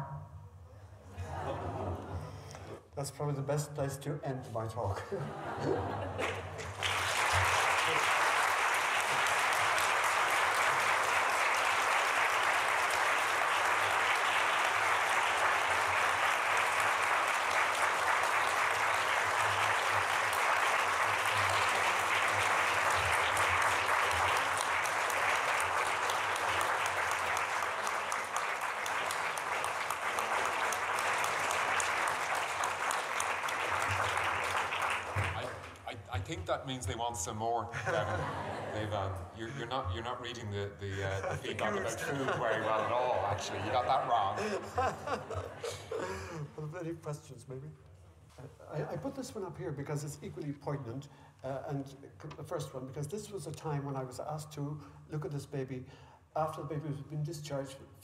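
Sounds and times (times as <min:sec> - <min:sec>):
audience applauding: 0:05.8 - 0:36.0, 0:41.1 - 0:46.4.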